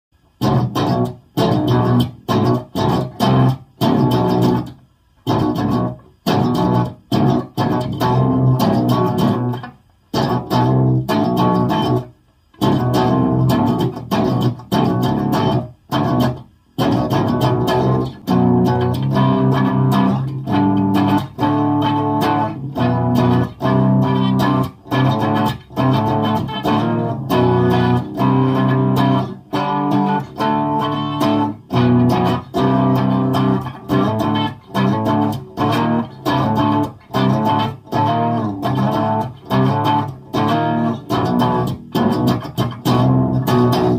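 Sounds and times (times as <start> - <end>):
clean electric guitar riff: 0.2 - 43.9.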